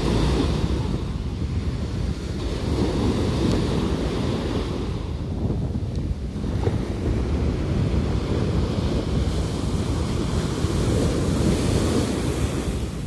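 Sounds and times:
waves washing up a beach: 0.0s - 13.0s
wind rumbling on microphone: 0.0s - 13.0s.

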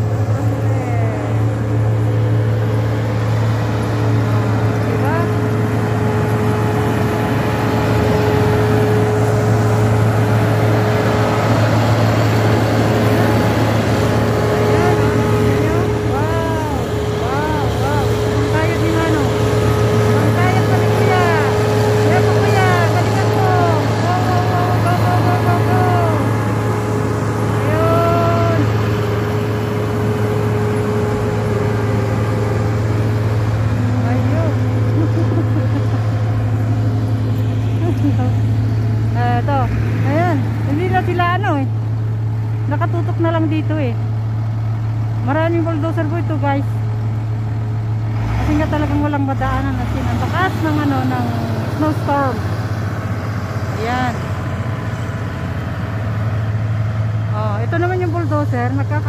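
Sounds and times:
drawn-out rising tone: 0.0s - 43.2s
steady whine: 0.0s - 48.0s
diesel engine running: 0.0s - 59.0s.

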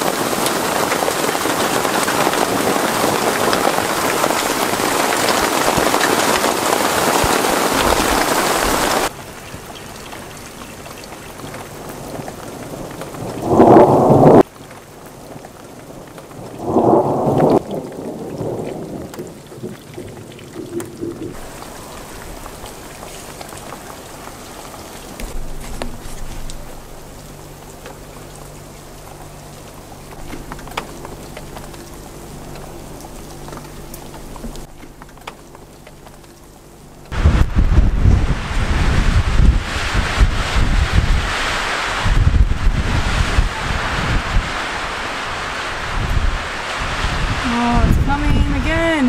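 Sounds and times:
heavy rain and hail pelting: 0.0s - 49.0s
thunder claps: 12.6s - 14.5s, 16.3s - 21.5s, 37.1s - 49.0s.

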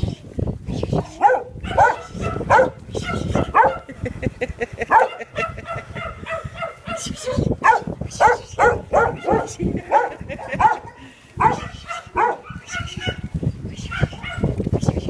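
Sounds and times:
puppy barking in high yaps: 1.2s - 3.9s, 4.9s - 13.2s, 13.9s - 14.5s.

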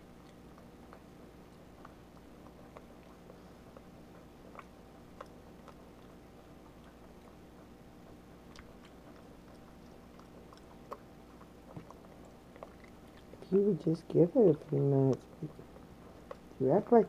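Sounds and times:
low steady hum: 0.0s - 17.0s
monkey chewing with wet smacks: 0.0s - 17.0s.

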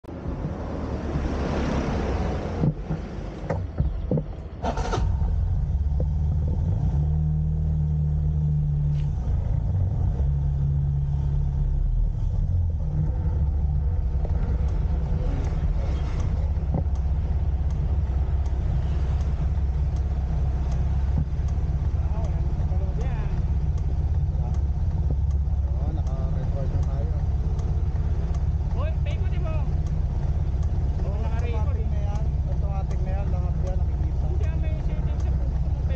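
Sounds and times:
scooter engine humming: 0.0s - 35.9s.

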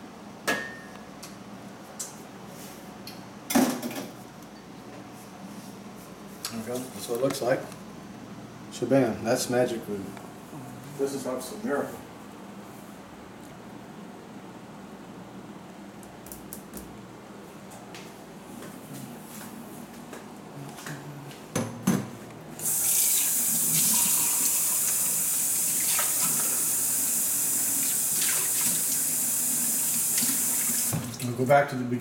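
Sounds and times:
water running into steel sink: 22.6s - 31.3s.

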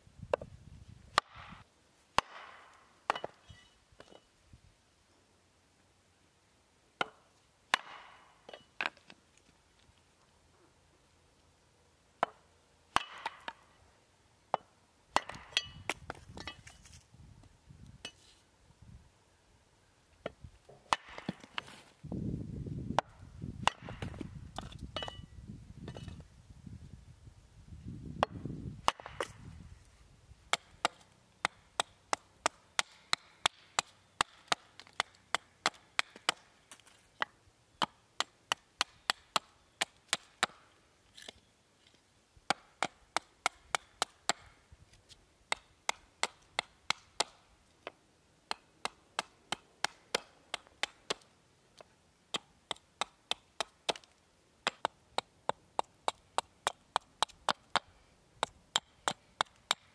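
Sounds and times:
hatchet chopping wood: 1.1s - 3.4s, 7.0s - 9.0s, 12.2s - 13.6s, 14.5s - 16.7s, 20.2s - 21.7s, 23.0s - 25.2s, 28.2s - 29.4s, 30.5s - 41.3s, 42.5s - 44.6s, 45.5s - 59.9s.

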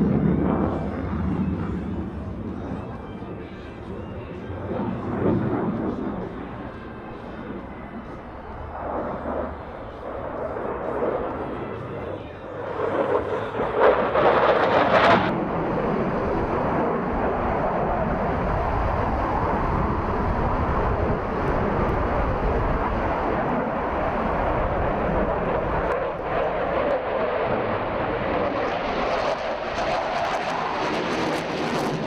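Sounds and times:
fighter jet flying past: 0.0s - 32.0s.

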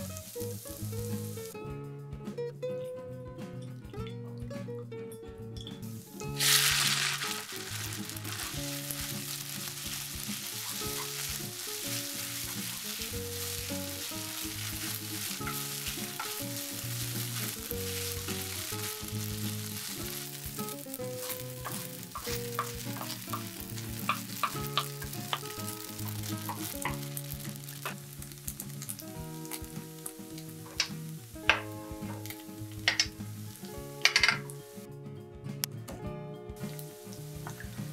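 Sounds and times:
noodles sizzling in hot oil: 0.0s - 1.6s, 5.8s - 34.9s, 36.6s - 37.9s
spatula clicking against pan: 21.3s - 27.1s, 30.8s - 33.2s, 34.0s - 34.5s.

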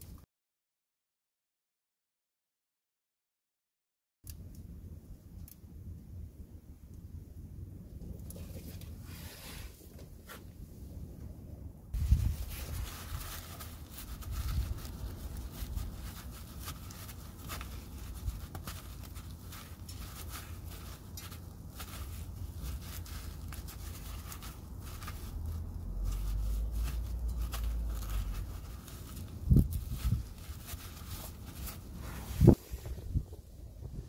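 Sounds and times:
cloth rag scraping metal: 12.0s - 33.0s.

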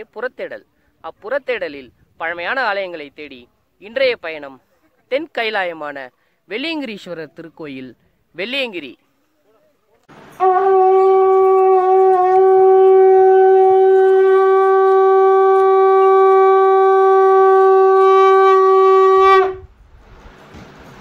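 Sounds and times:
conch shell blown: 10.4s - 19.7s.

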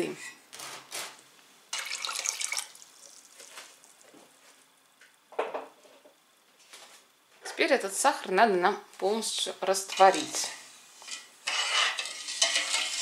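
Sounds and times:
water splashing into pot: 1.7s - 4.0s.

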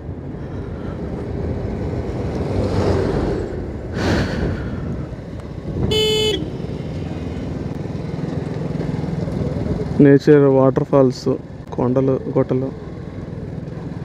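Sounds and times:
wind rumble: 0.0s - 7.8s
motorcycle engine: 5.3s - 10.4s
vehicle horn: 5.9s - 6.6s.

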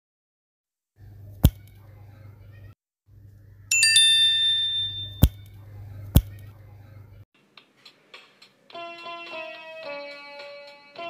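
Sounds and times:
bright bell-like ding: 3.7s - 5.5s.

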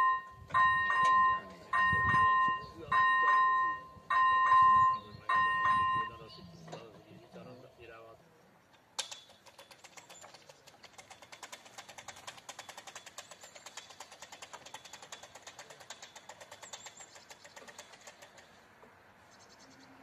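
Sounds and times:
level crossing warning bell: 0.0s - 6.3s.

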